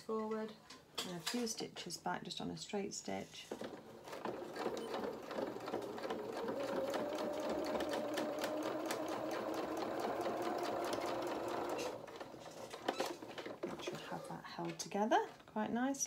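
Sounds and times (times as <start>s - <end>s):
sewing machine running: 3.6s - 13.9s.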